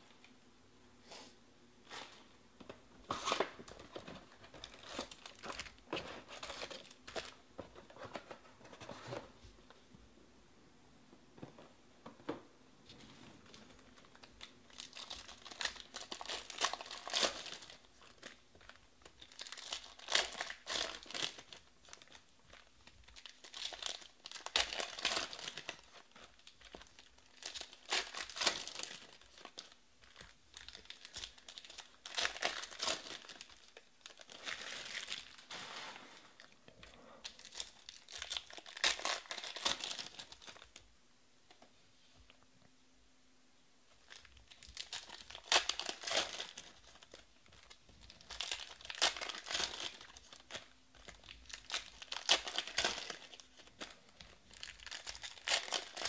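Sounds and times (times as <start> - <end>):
foil wrappers crinkling: 13.6 - 36.5, 37.2 - 40.8, 44.0 - 56.0.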